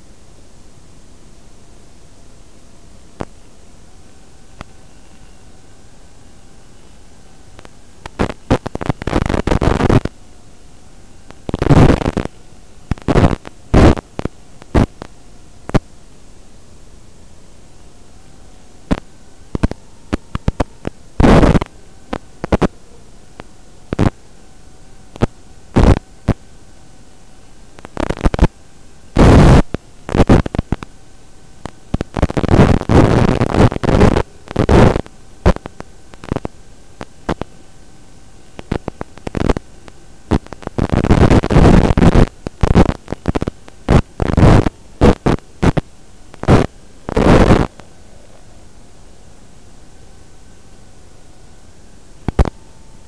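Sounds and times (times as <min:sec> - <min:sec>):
static hiss: 0:00.0 - 0:53.0
loud bursts of static: 0:01.3 - 0:53.0
faint wavering tone: 0:01.4 - 0:32.0, 0:47.7 - 0:53.0.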